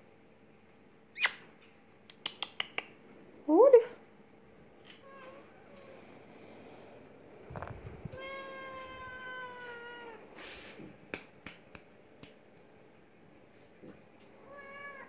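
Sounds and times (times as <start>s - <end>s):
cat meowing: 7.6s - 10.2s, 14.5s - 15.0s.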